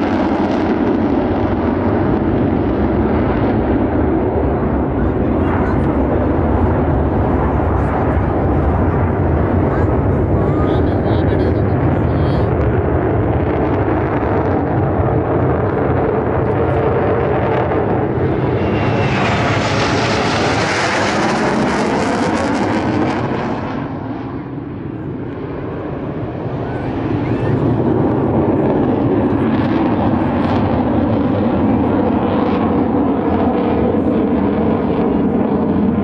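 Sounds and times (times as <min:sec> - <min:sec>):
jet engines roaring past: 0:00.0 - 0:36.0.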